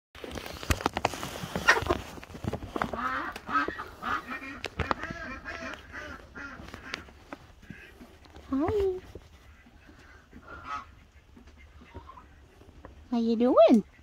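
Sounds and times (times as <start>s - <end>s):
chickens clucking: 1.5s - 14.0s.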